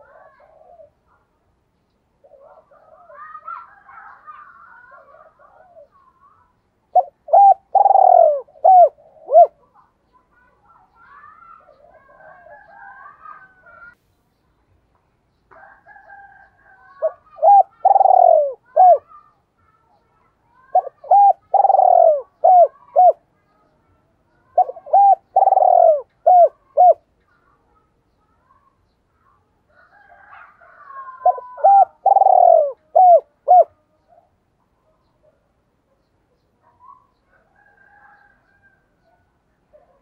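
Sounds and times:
dove cooing: 0.0s - 1.2s, 2.2s - 6.3s, 6.9s - 9.9s, 11.4s - 14.0s, 15.6s - 19.2s, 20.6s - 23.4s, 24.4s - 27.2s, 29.8s - 34.3s.

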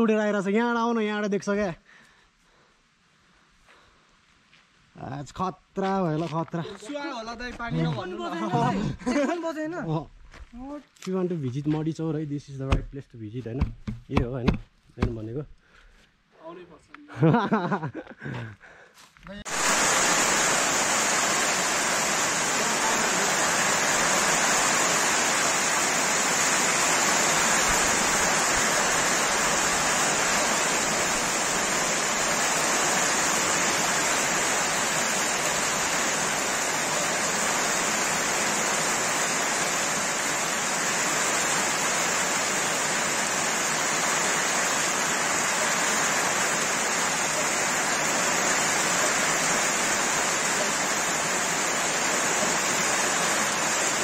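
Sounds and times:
heavy rain on grass and water: 6.2s - 11.1s, 17.2s - 18.0s, 19.5s - 54.0s.

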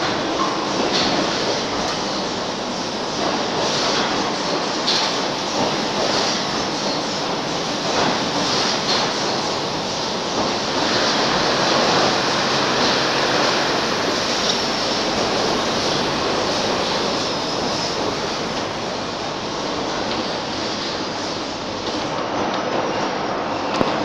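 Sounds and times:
loud rushing noise: 0.0s - 22.3s.

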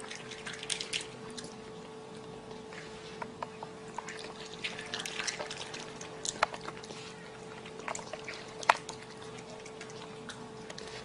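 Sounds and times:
faint steady hum: 0.0s - 11.0s
raccoon chewing grapes: 0.0s - 11.0s.

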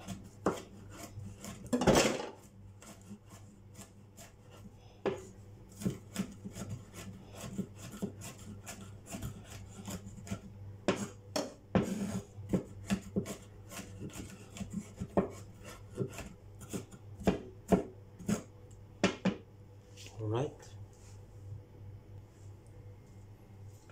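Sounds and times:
knife chopping on wooden board: 0.0s - 3.2s, 5.0s - 19.4s
knife scraping board: 0.0s - 18.5s.

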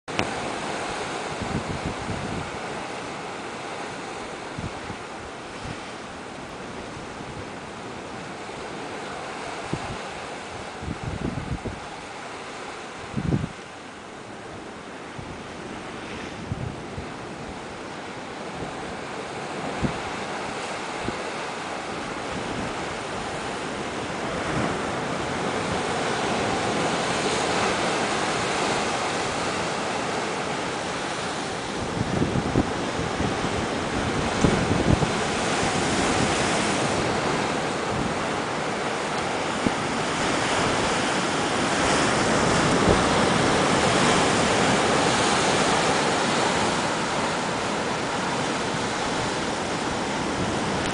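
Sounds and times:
wind on microphone: 0.1s - 50.9s
surf breaking on rocks: 18.4s - 50.9s.

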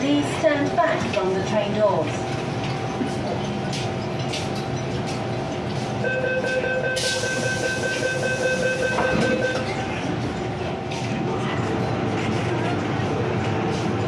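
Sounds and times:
train humming: 0.0s - 14.0s
rapid door warning beeps: 6.0s - 9.7s
train doors shutting knock: 8.8s - 9.7s.

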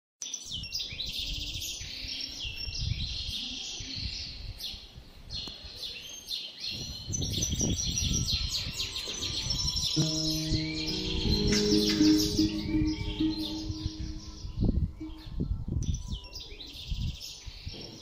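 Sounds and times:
birds chirping and singing: 6.1s - 18.0s.

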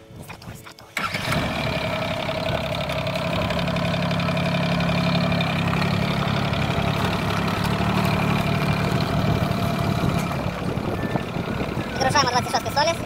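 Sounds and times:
tractor diesel engine running: 1.0s - 13.0s.

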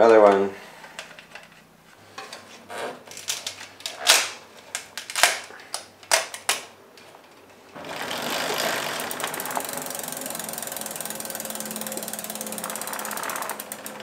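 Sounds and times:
plastic clicks and rustles: 3.0s - 7.7s.

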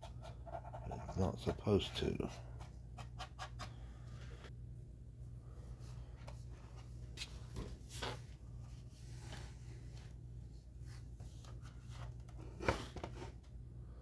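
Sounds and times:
paintbrush scratching on plastic: 0.0s - 3.7s
low steady hum: 0.0s - 14.0s.

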